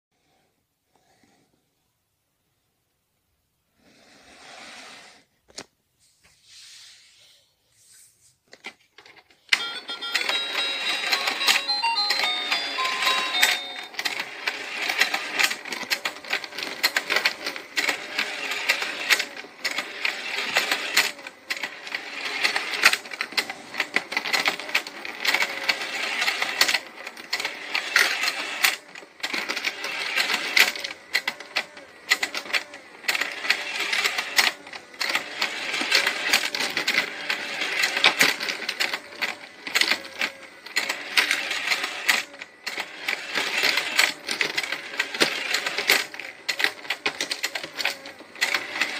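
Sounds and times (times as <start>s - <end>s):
plastic toy mechanism rattling: 8.6s - 48.9s.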